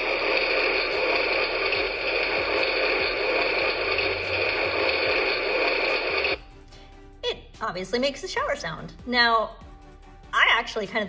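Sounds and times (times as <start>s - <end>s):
electronic shower water hiss: 0.0s - 6.4s.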